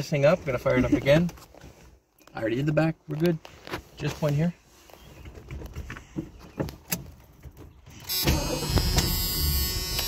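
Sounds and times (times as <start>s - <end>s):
car engine whine and rumble: 7.9s - 10.0s
starter motor cranking: 7.9s - 10.0s.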